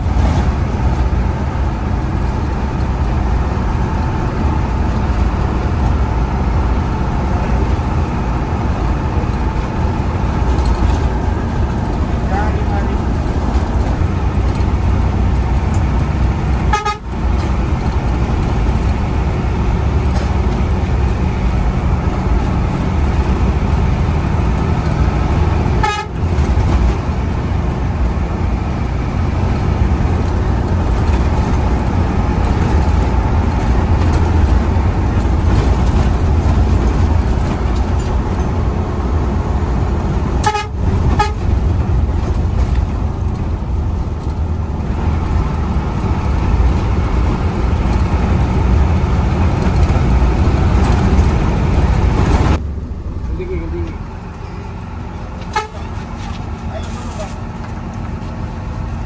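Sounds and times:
bus engine and road rumble: 0.0s - 59.0s
bus horn toots: 16.5s - 17.5s, 25.6s - 26.8s, 40.3s - 41.7s, 55.4s - 56.2s.

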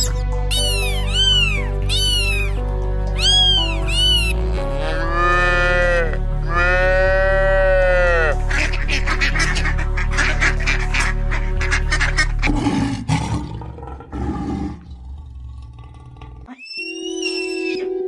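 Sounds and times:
background music: 0.0s - 14.8s
cat meowing: 0.5s - 4.4s
cow mooing: 4.4s - 8.4s.

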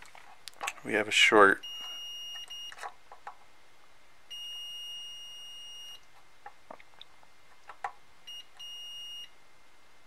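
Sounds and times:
multimeter high beep: 1.6s - 2.8s, 4.3s - 6.0s, 8.3s - 9.3s.

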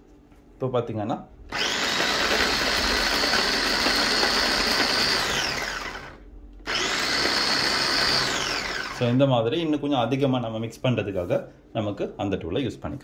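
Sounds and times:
electric food chopper whining: 1.5s - 9.2s.

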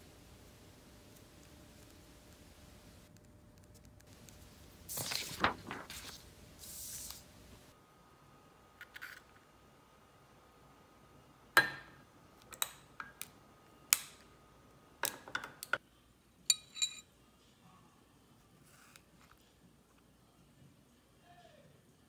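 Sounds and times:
tableware being handled: 16.5s - 17.1s.

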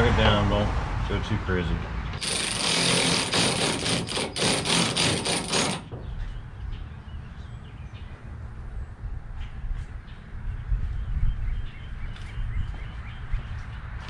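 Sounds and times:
cordless drill driving screw: 2.2s - 5.9s.

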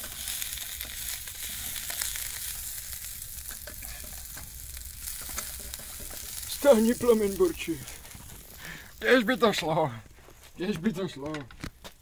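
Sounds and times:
onion sizzling in fat: 0.0s - 11.2s
stirring clicks and knocks: 3.4s - 8.6s, 9.5s - 12.0s.

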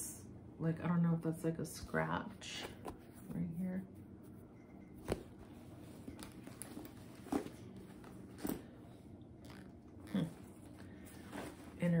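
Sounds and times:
handling knocks and rubs: 4.2s - 8.8s.

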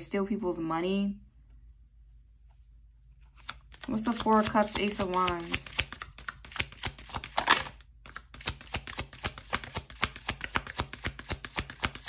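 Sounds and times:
cards being shuffled: 3.1s - 12.0s.

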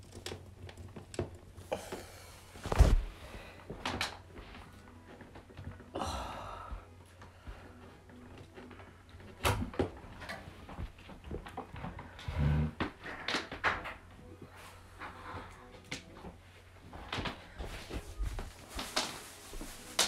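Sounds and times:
rustling: 2.2s - 5.8s, 14.5s - 20.0s.

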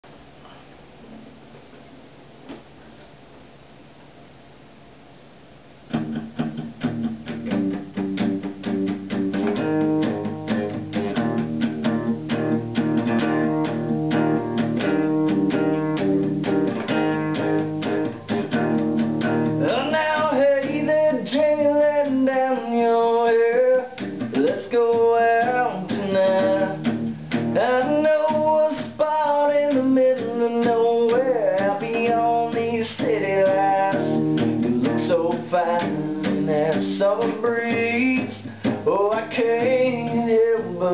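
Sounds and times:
acoustic guitar strumming: 5.9s - 40.9s
man singing: 19.4s - 40.9s.

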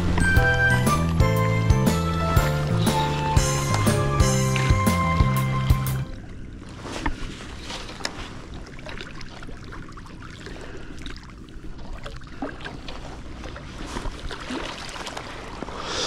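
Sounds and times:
water lapping: 0.0s - 16.0s.

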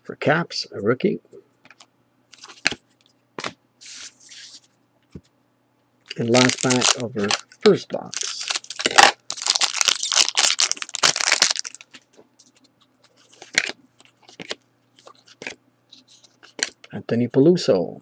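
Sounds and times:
foil wrapper crinkling: 6.1s - 15.6s.

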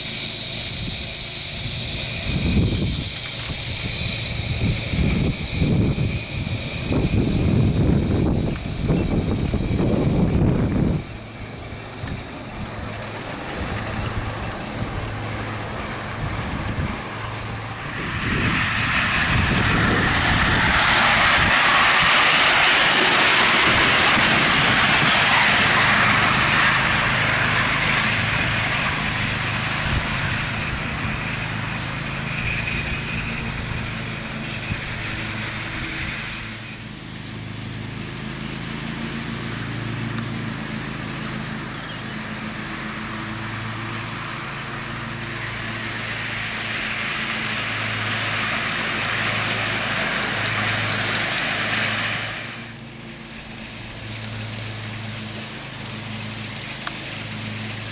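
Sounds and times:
steam hiss and exhaust: 0.0s - 57.9s
wheel and rail noise: 0.0s - 57.9s
low pulsing: 14.1s - 27.2s.

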